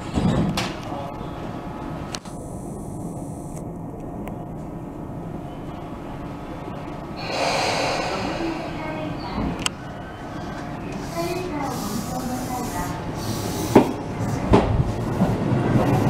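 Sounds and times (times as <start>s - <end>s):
electric train humming: 4.8s - 11.0s
compressed air hiss: 7.2s - 9.5s.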